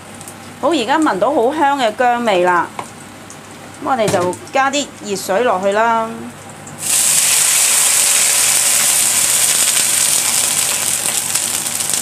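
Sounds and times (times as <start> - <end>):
oil crackling: 6.8 - 12.0
water hissing in hot oil: 6.8 - 12.0.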